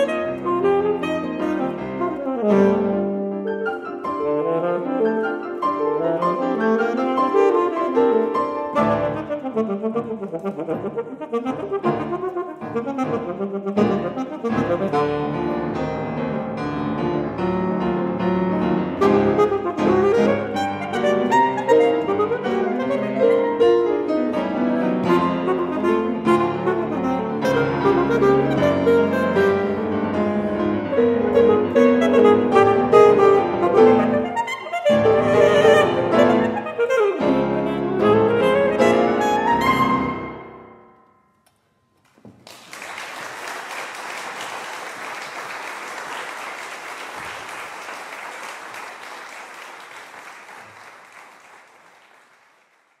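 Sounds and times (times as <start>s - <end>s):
saxophone and piano duo: 0.0s - 43.0s
audience applause: 42.2s - 53.0s.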